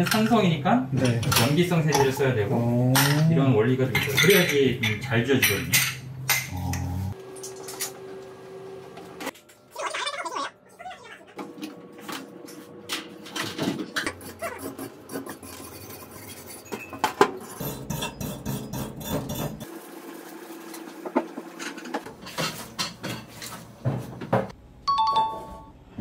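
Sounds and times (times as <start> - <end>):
metal and dishware clattering: 1.0 - 6.6, 21.6 - 24.4.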